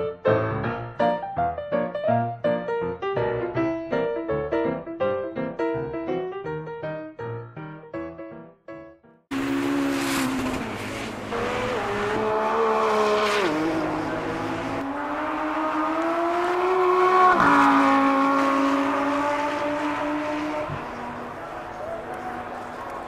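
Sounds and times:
racing car engine accelerating: 9.3s - 23.0s.

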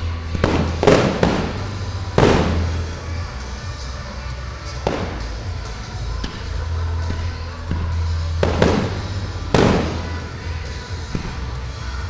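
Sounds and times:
firework shells bursting: 0.4s - 3.0s.

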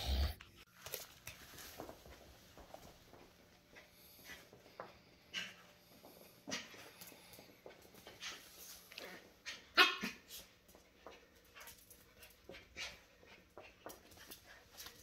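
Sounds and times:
paws scuffling on hardwood floor: 0.7s - 15.0s
puppy barking: 9.5s - 10.3s.

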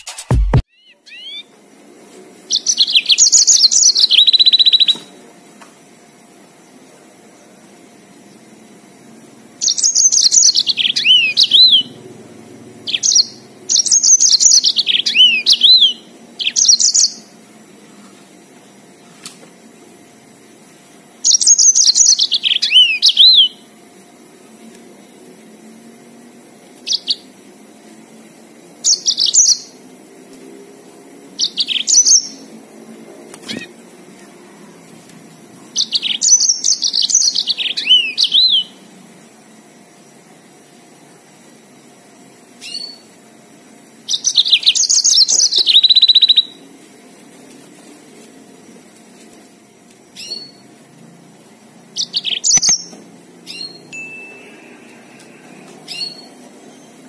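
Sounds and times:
canary singing: 0.0s - 1.6s, 2.5s - 5.1s, 9.5s - 17.4s, 21.2s - 23.8s, 26.8s - 27.3s, 28.8s - 29.8s, 31.4s - 32.5s, 33.4s - 33.8s, 35.7s - 38.9s, 42.6s - 43.2s, 44.0s - 46.6s, 50.1s - 50.7s, 51.8s - 57.0s.

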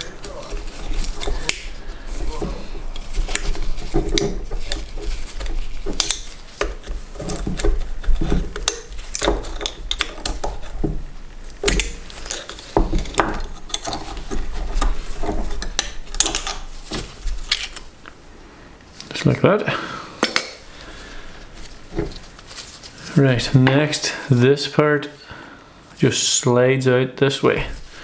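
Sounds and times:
screwdriver clicking and scraping metal: 2.9s - 10.8s, 11.6s - 16.7s.

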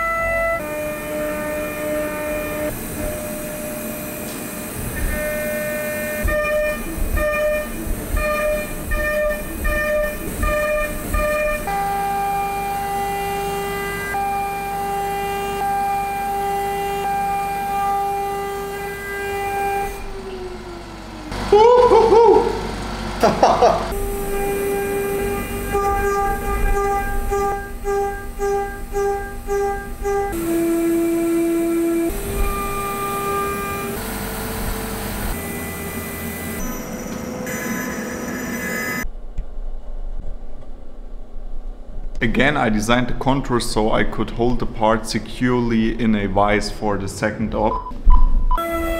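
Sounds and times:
loud wavering tone: 0.0s - 22.8s, 23.9s - 39.1s, 47.9s - 48.9s
router spindle whining: 0.0s - 23.2s, 23.9s - 39.1s.

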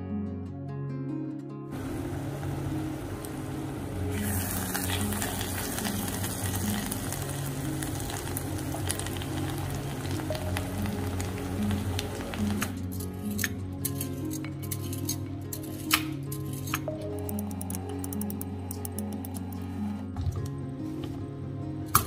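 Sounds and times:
soft background music: 0.0s - 22.0s
food sizzling in hot oil: 1.8s - 12.8s.

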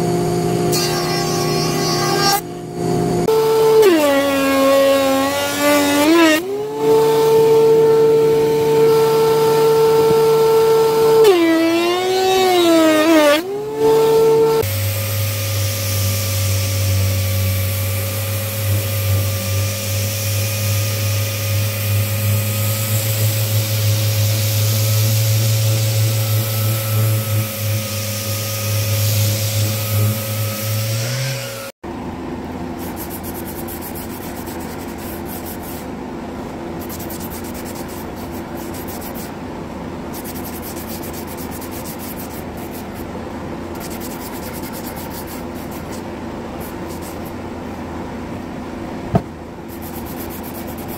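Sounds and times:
detail sander buzzing: 0.0s - 31.7s
orbital sander humming: 0.0s - 31.7s.

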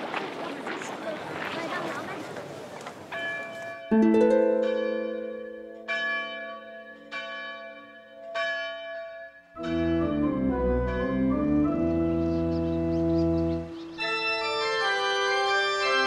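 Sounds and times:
church bells striking: 3.1s - 11.6s, 13.9s - 16.0s
low sustained organ chord: 3.9s - 7.0s, 9.6s - 16.0s.

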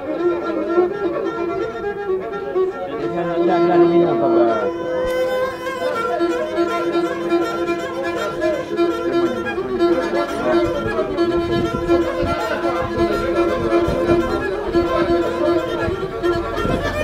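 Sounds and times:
solo folk fiddle with drone: 0.0s - 17.0s.

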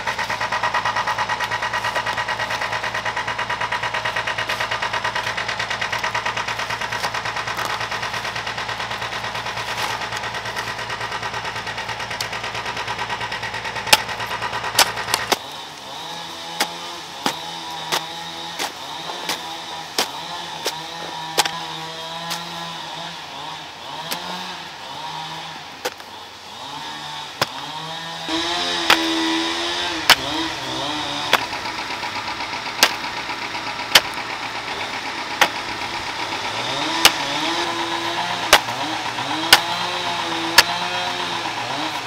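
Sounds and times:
steady engine-like hum: 0.0s - 42.0s
hoe thudding into soil: 13.9s - 22.7s, 27.4s - 27.7s, 28.6s - 31.8s, 35.4s - 35.8s.

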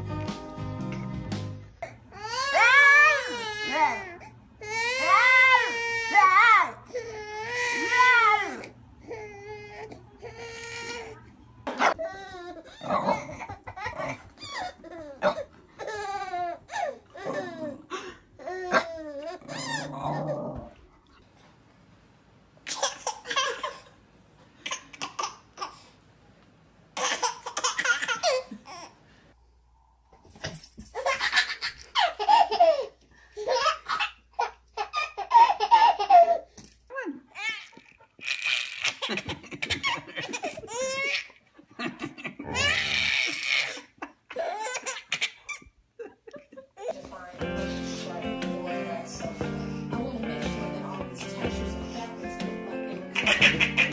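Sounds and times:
babies laughing: 31.0s - 36.5s, 37.6s - 47.1s, 52.8s - 53.9s.

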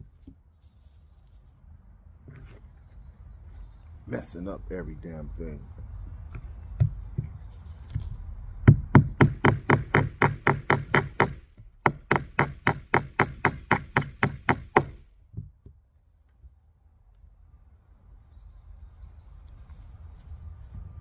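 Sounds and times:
hammer knocking: 8.6s - 15.8s.

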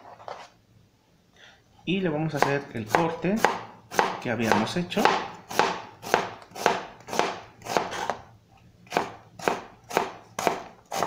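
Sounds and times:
knife slicing onion on board: 2.4s - 8.3s, 8.9s - 11.0s.

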